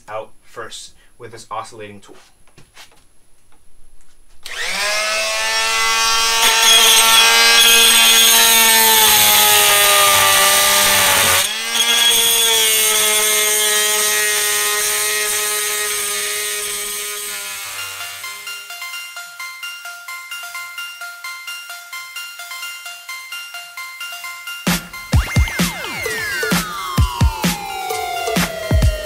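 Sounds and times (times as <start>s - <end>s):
oscillating multi-tool buzzing: 4.4s - 23.9s.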